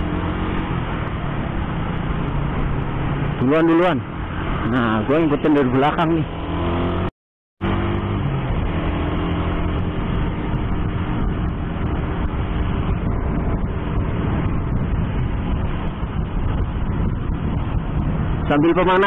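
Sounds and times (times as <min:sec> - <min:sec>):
wind and road noise: 0:00.0 - 0:19.0
motorcycle engine running: 0:07.6 - 0:18.6.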